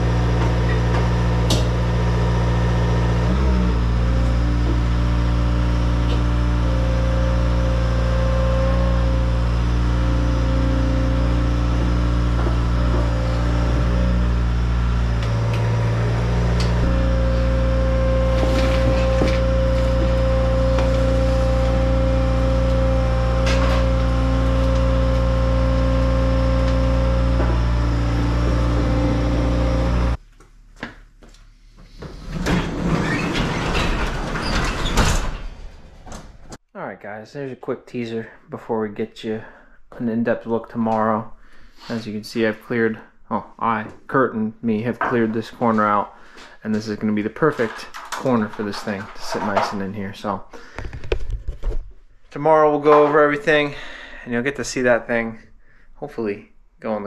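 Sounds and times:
diesel engine idling: 0.0s - 30.2s
rattle and clatter: 31.9s - 36.6s, 47.5s - 49.9s.

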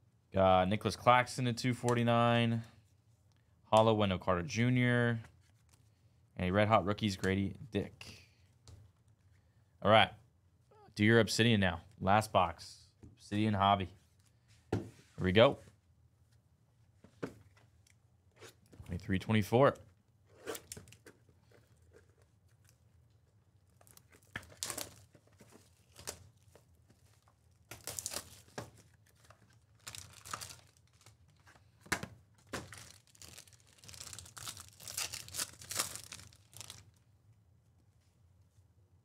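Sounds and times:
plastic wrapper tearing and crinkling: 23.7s - 25.1s, 27.6s - 31.5s, 32.5s - 37.0s.

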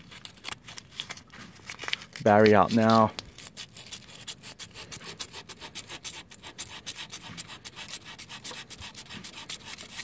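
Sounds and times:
sandpaper rasping on metal: 3.5s - 10.0s.

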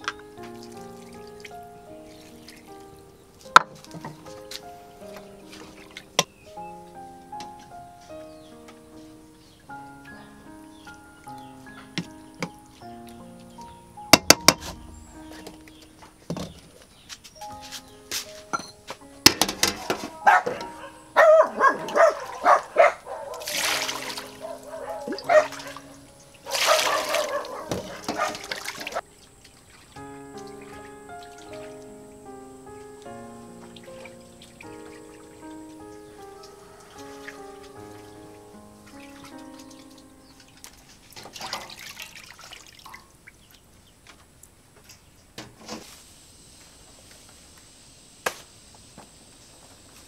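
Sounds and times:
hands splashing and rubbing fish: 0.0s - 6.2s, 21.9s - 32.1s, 33.8s - 43.1s
wet fish slapping and dripping: 23.3s - 24.4s, 26.4s - 32.0s, 40.6s - 43.1s.

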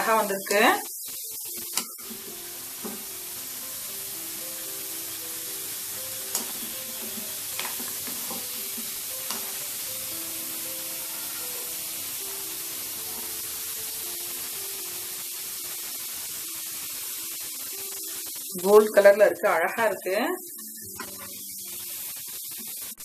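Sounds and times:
food deep-frying in oil: 0.0s - 23.0s
spoon knocking pan: 1.6s - 3.3s, 5.5s - 11.9s, 20.9s - 21.4s.

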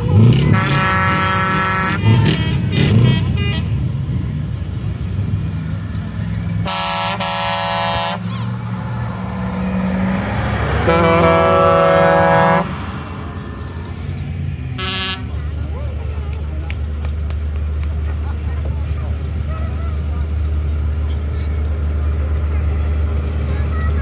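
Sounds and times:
diesel truck engine running: 0.0s - 24.0s
truck air horn blasts: 0.4s - 3.8s, 6.6s - 8.3s, 10.8s - 12.8s, 14.8s - 15.4s.

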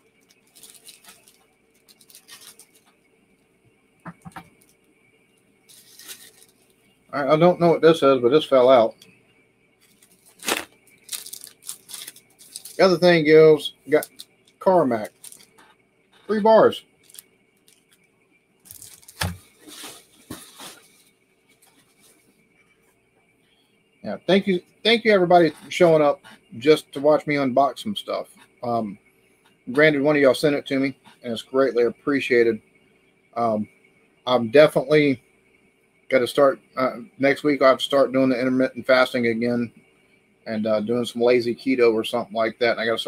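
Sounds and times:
packaging rustling and crinkling: 0.1s - 3.0s, 5.7s - 6.8s, 9.8s - 13.0s, 13.9s - 14.3s, 14.9s - 15.7s, 17.0s - 18.0s, 18.7s - 22.2s.

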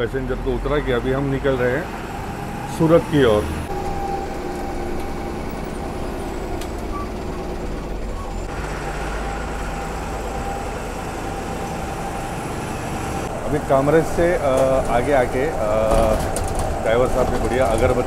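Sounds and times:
bus engine running: 0.0s - 18.0s
road noise: 0.0s - 18.0s.

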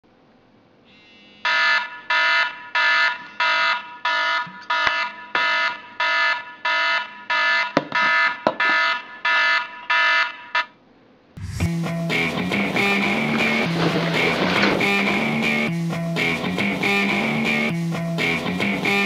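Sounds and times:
phone alarm pulsed tone: 1.4s - 10.7s.

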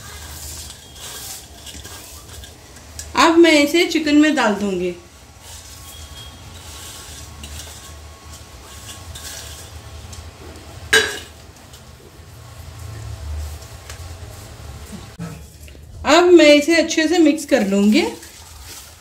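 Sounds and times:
fried onions rustling: 0.0s - 15.2s, 16.9s - 19.0s
metallic clink of dishware: 11.0s - 11.3s.

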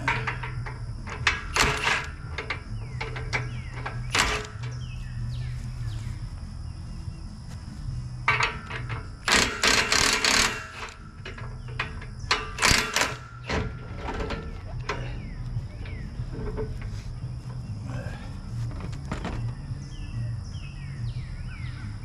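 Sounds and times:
metal clanks from hand tools: 0.0s - 4.9s, 8.3s - 16.9s
metal rattling and scraping: 0.0s - 6.4s, 8.0s - 20.0s
steady low hum: 0.0s - 22.0s.

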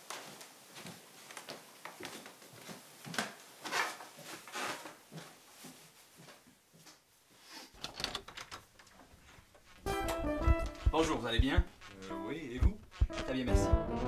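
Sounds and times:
handling knocks and clicks: 7.8s - 12.0s.

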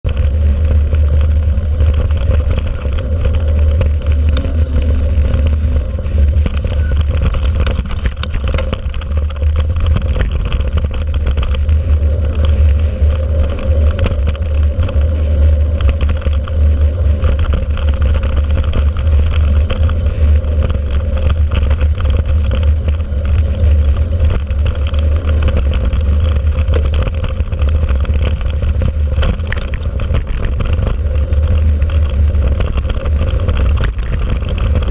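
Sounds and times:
bike tyre noise on dirt: 0.0s - 34.9s
steady hum: 0.0s - 34.9s
wind rumble on microphone: 0.0s - 34.9s.

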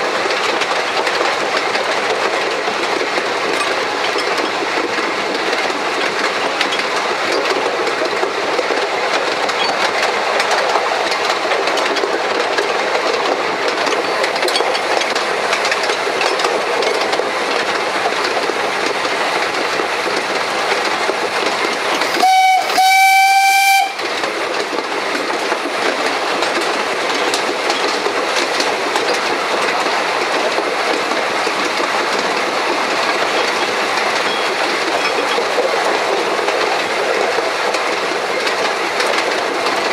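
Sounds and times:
train wheels on rails: 0.0s - 39.9s
steam whistle: 22.2s - 24.0s.

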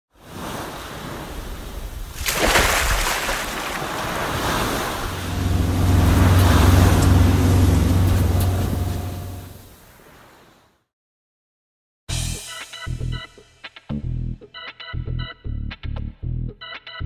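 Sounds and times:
sea waves washing: 0.2s - 10.6s
low steady hum: 4.9s - 9.7s.

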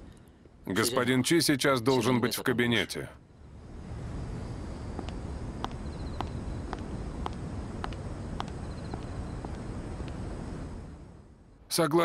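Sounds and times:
high-heeled footsteps clicking: 5.0s - 10.2s.

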